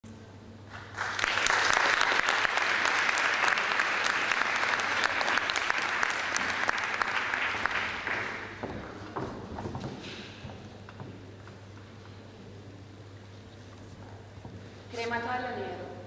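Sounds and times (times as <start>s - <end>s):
audience applause: 0.7s - 8.7s.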